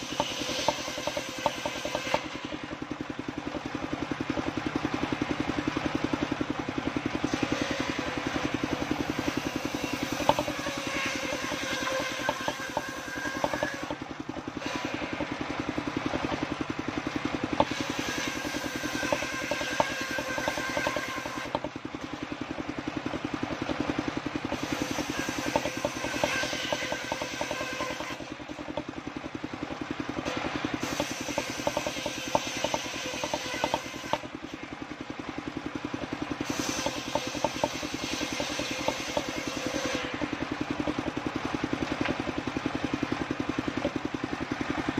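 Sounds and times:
saw blade ripping wood: 0.0s - 2.8s, 7.2s - 15.4s, 17.5s - 22.2s, 24.4s - 28.9s, 30.2s - 34.6s, 36.0s - 41.1s
saw bench engine running: 0.0s - 44.9s.

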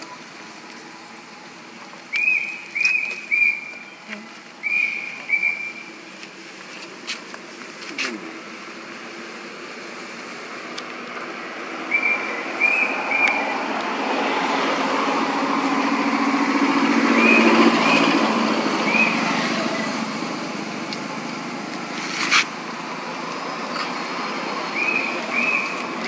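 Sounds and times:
motor vehicle passing by: 11.8s - 26.0s.

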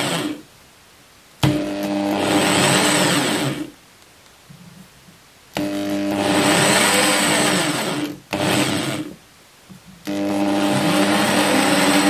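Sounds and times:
electric drill motor running: 0.0s - 0.4s, 1.4s - 3.7s, 5.6s - 9.2s, 10.0s - 12.0s.

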